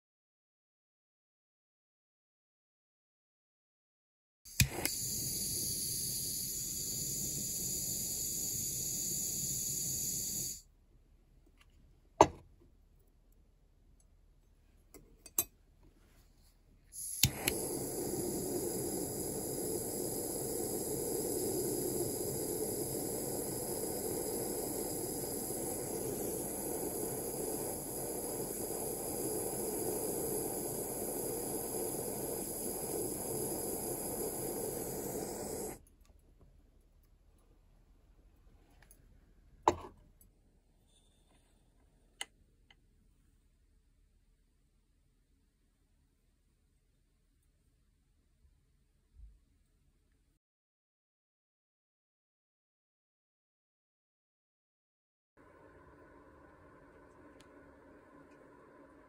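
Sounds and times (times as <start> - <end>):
torch igniter clicks: 4.5 - 10.6, 17.0 - 35.8
gas torch hissing: 4.5 - 10.7, 16.9 - 35.8.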